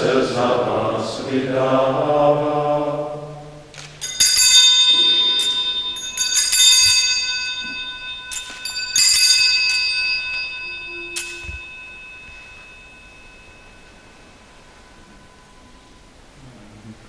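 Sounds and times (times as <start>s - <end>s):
altar bells ringing: 0.0s - 16.4s.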